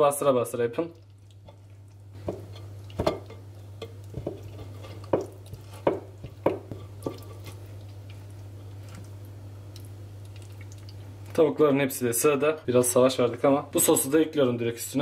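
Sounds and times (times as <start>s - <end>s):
steady low hum: 0.0s - 15.0s
wet squishes of raw meat: 0.8s - 2.2s, 7.0s - 11.1s.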